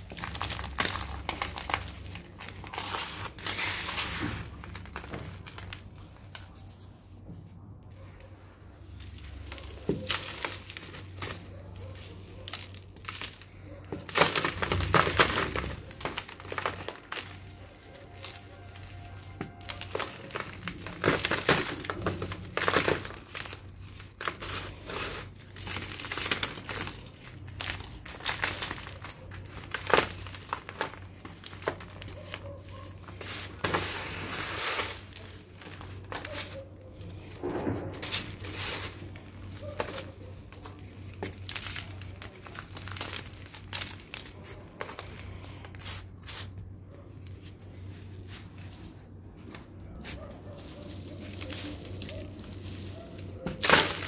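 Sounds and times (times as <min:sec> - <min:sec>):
grains pattering onto a sheet: 0:00.0 - 0:06.8, 0:08.8 - 0:46.5, 0:49.5 - 0:54.0.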